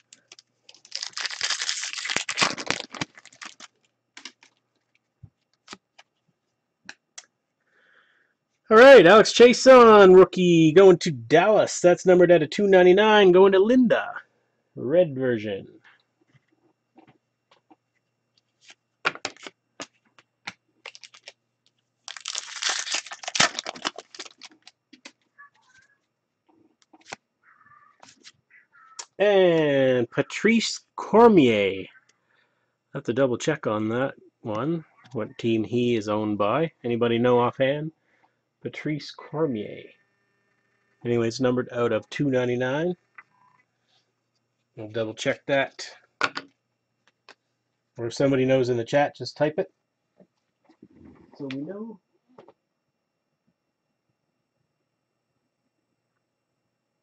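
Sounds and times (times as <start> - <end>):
wrapper tearing and crinkling: 0.0 - 4.5, 19.2 - 19.5, 20.8 - 21.4, 22.1 - 25.1
cards clicking and snapping: 0.0 - 4.6, 19.0 - 21.3.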